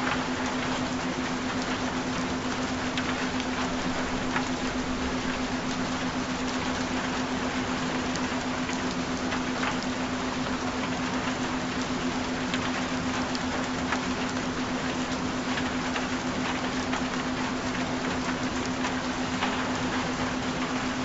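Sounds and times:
raindrops ticking: 0.0 - 21.0
steady rain: 0.0 - 21.0.

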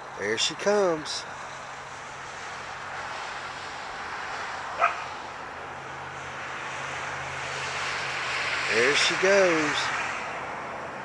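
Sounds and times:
car passing: 0.0 - 11.0
dog barking: 4.8 - 5.1.

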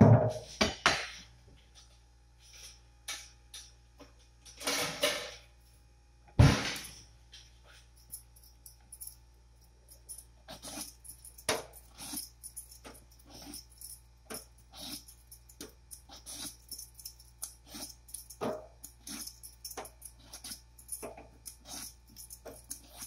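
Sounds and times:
peeler scraping gourd skin: 15.8 - 16.8, 21.4 - 23.0.

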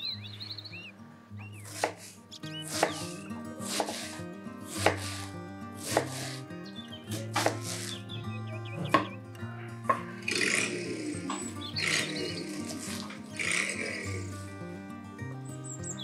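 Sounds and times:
knife chopping on cutting board: 1.7 - 2.0, 2.7 - 6.4, 7.1 - 7.9.

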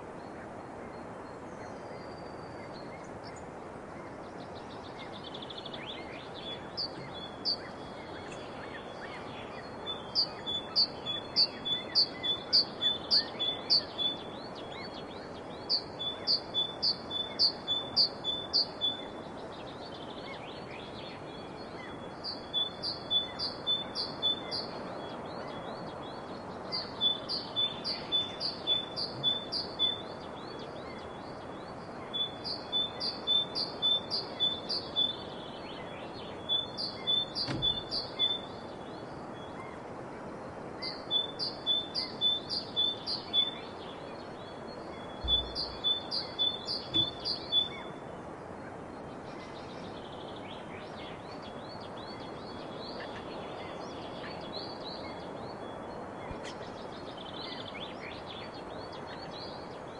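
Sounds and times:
steady background hiss: 0.0 - 59.9.

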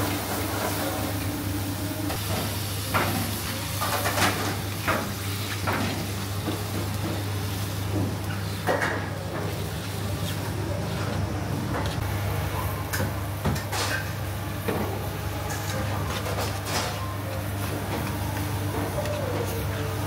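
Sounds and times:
vegetables sizzling in a pan: 0.0 - 10.0.

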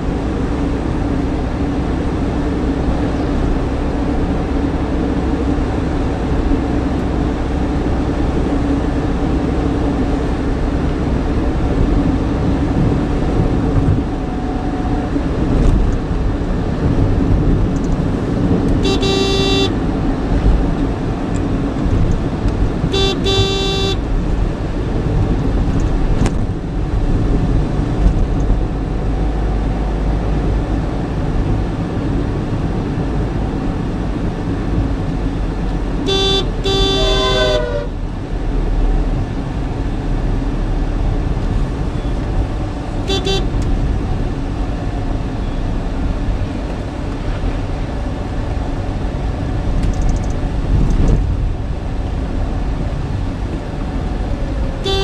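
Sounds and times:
car engine and road noise: 0.0 - 55.0
vehicle horn: 18.8 - 19.8, 22.8 - 24.1, 36.0 - 38.0, 43.0 - 43.6, 54.8 - 55.0.

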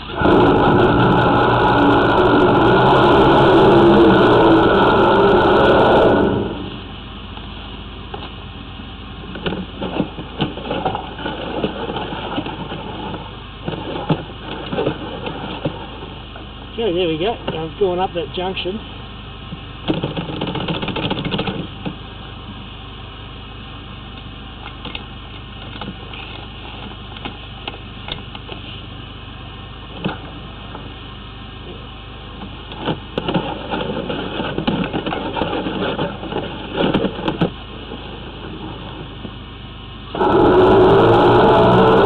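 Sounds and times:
rough noise: 0.0 - 7.1, 40.1 - 42.0
drain jetter engine humming: 0.0 - 42.0.

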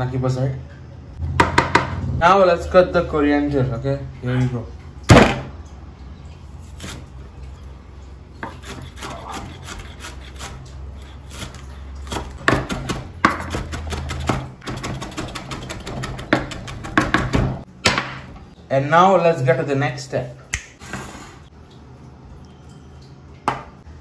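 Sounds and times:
knife chopping on cutting board: 11.4 - 17.6.

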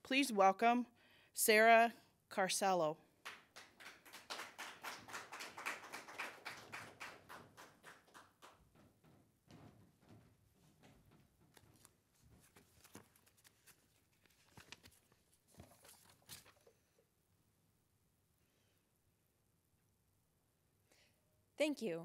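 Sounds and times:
paper rustling: 11.1 - 16.8.

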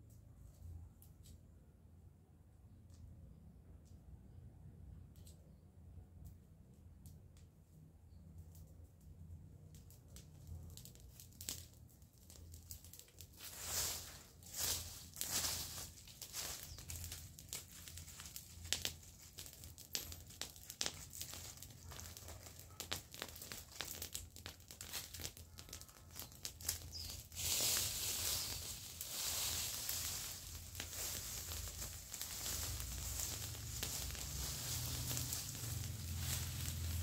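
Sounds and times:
crackling fire: 5.0 - 37.0
twigs snapping: 9.9 - 37.0
brush raked across ground: 12.2 - 37.0.

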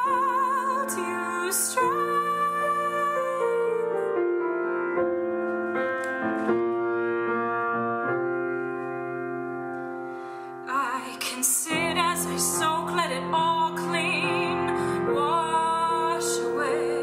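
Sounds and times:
woman singing with vibrato: 0.0 - 4.2, 10.7 - 17.0
piano playing slow chords: 0.0 - 17.0.

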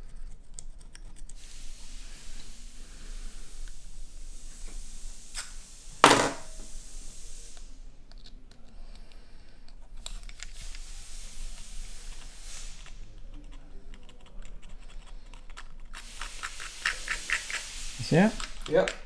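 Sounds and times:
sharp knock: 6.0 - 6.5.

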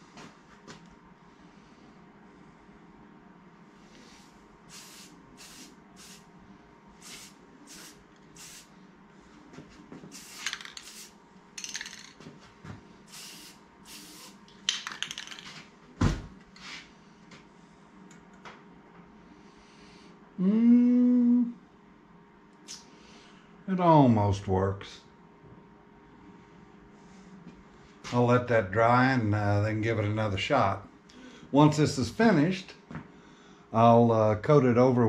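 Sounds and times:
aerosol spray can hissing: 4.7 - 6.2, 7.0 - 8.7, 10.1 - 11.1, 13.1 - 14.4.

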